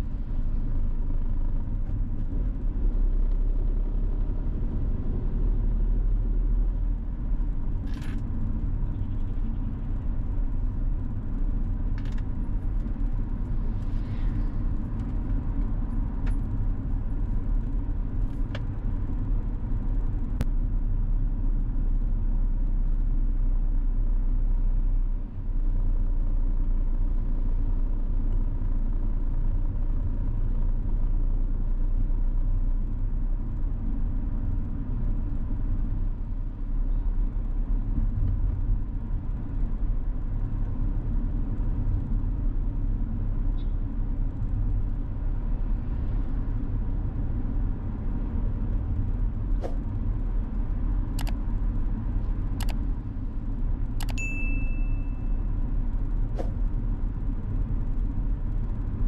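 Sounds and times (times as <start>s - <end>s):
car driving rumble: 0.0s - 59.0s
sharp clicks: 51.1s - 51.4s, 52.5s - 52.8s, 54.0s - 54.2s
short high beep: 54.1s - 55.5s.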